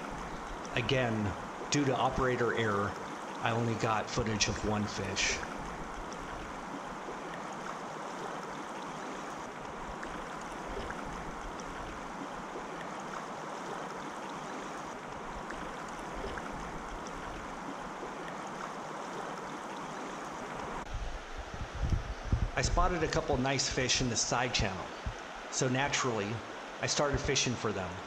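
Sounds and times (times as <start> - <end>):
river flowing over rocks: 0.0 - 20.9.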